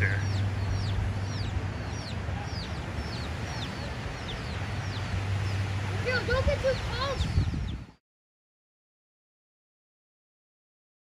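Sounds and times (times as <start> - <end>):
chicks peeping: 0.0 - 8.0.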